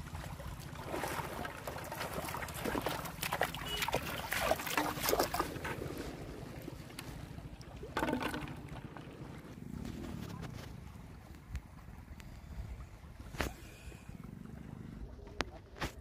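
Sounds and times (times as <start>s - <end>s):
footsteps splashing through water: 0.0s - 7.9s.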